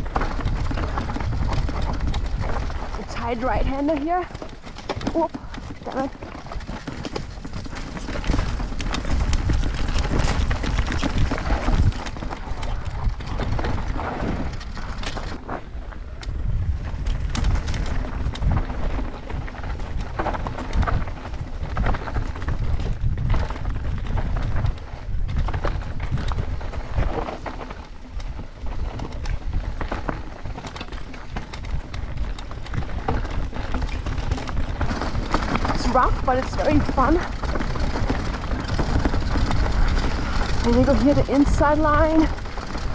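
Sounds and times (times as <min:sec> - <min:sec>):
bike rattling and knocking: 0:00.0 - 0:42.9
rumble on camera microphone: 0:00.0 - 0:42.9
tyres crunching over rocks: 0:00.0 - 0:42.9.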